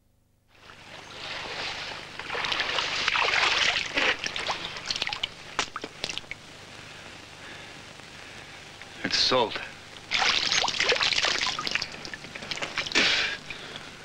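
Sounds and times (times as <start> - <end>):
water splashing and sloshing: 0.8 - 6.4, 10.1 - 13.0.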